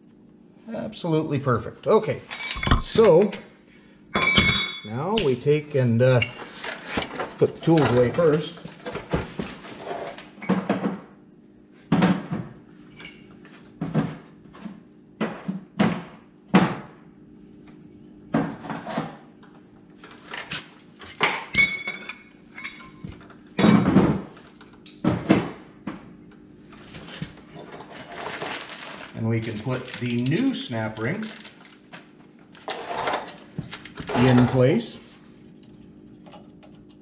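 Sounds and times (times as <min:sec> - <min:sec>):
metal tools clanking: 0:02.1 - 0:03.6, 0:04.2 - 0:10.2, 0:20.0 - 0:25.4, 0:34.0 - 0:34.9
metal tool ringing: 0:02.3 - 0:03.6, 0:04.2 - 0:05.6, 0:21.1 - 0:23.6.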